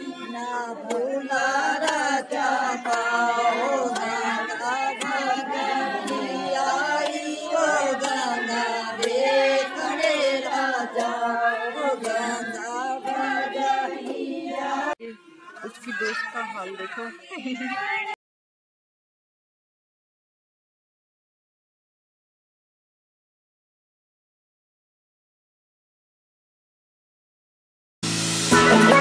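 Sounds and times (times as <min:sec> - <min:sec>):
women singing together: 0:00.0 - 0:15.1.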